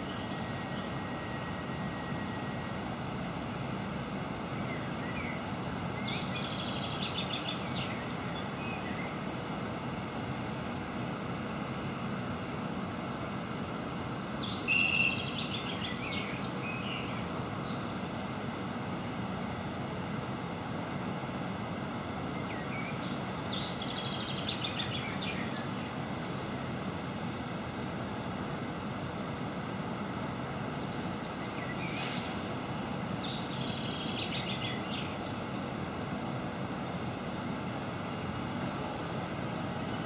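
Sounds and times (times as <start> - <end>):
songbird chirping and trilling: 0.0 - 2.6, 4.6 - 9.4, 13.6 - 18.3, 22.3 - 26.7, 30.8 - 32.0, 32.6 - 35.6.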